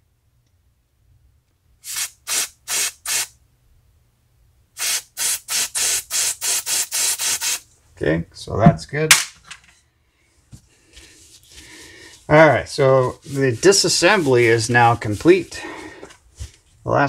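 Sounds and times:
aerosol spray bursts: 1.8s - 3.4s, 4.8s - 7.6s.

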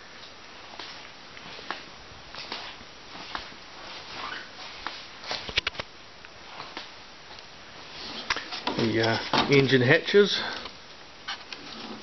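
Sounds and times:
footsteps: 0.6s - 5.8s
handling noises: 6.5s - 12.0s.

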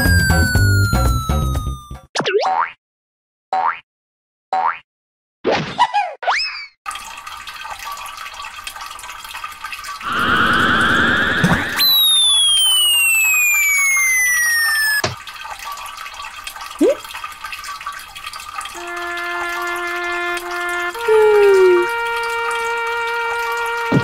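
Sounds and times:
falling whistle: 0.0s - 2.0s, 10.1s - 15.0s
warbling trill: 0.0s - 2.1s
running stream: 6.9s - 24.0s
rising swoop: 10.1s - 13.0s.

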